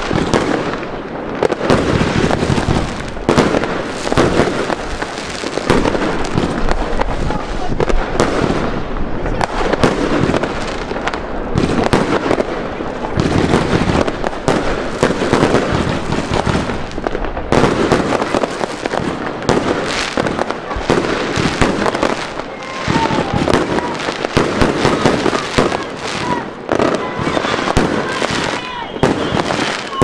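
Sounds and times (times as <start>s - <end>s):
fireworks bangs and crackles: 0.0s - 30.0s.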